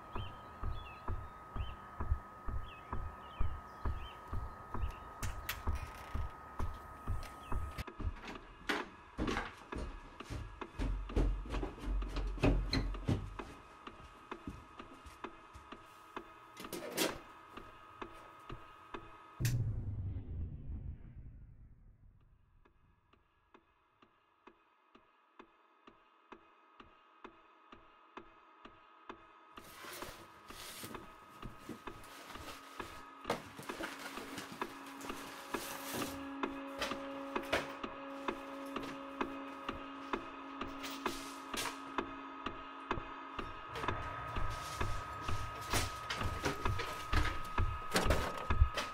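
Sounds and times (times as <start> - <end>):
faint steady hum: 0.0 - 8.9
footsteps on wooden stairs: 0.1 - 15.9, 43.0 - 48.9.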